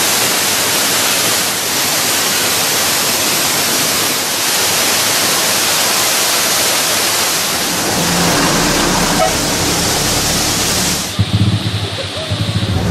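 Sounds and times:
waterfall rushing: 0.0 - 12.9.

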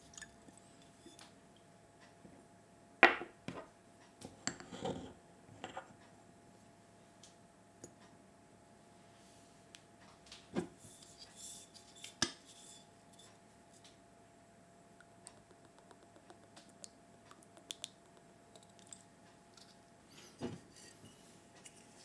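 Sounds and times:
teaspoon scraping and clicking: 15.3 - 19.8.

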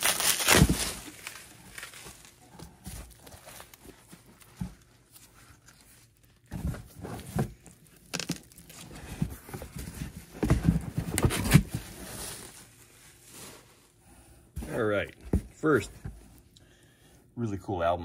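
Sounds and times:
record sleeves rustling and scraping: 0.0 - 14.0.

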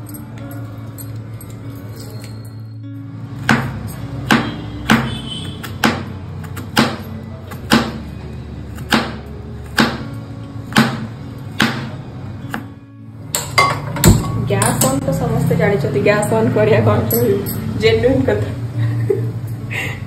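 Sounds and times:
quiet background music: 0.0 - 20.0
knife chopping on plastic board: 3.5 - 8.0.

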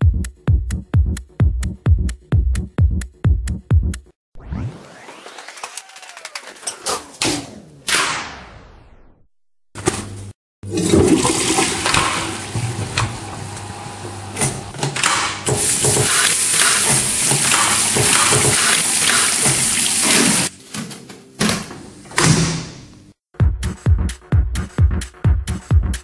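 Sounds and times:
toilet flushing: 10.6 - 14.8, 15.5 - 20.5.

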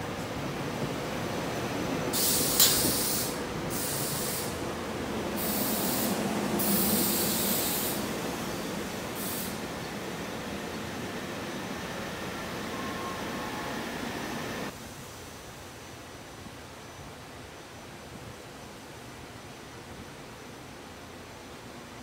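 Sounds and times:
train wheels rolling on rails: 0.0 - 14.7
short hissing bursts: 2.1 - 14.7.

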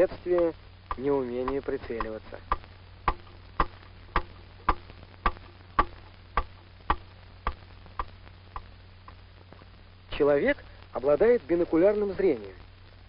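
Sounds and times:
mechanical ticking: 0.3 - 9.2.

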